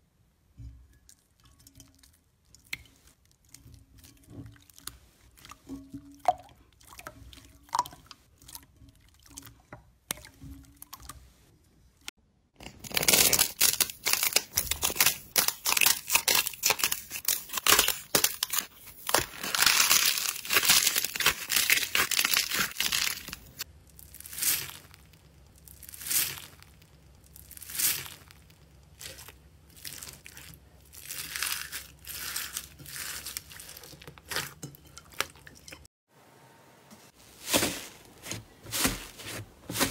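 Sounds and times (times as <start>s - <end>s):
crunchy slime squeezes: 12.6s - 34.4s
slime squelching: 12.6s - 35.9s
slime crackling: 12.7s - 34.5s.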